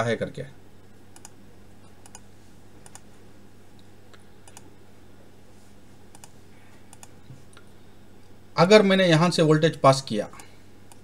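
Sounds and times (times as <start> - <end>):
low electrical hum: 0.0 - 11.0
computer mouse clicks: 1.1 - 3.1, 4.4 - 4.7, 6.1 - 7.2, 10.4 - 11.0.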